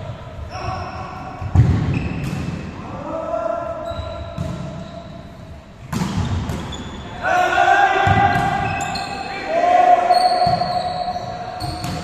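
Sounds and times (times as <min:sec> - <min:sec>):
players shouting: 0:07.0 - 0:12.0.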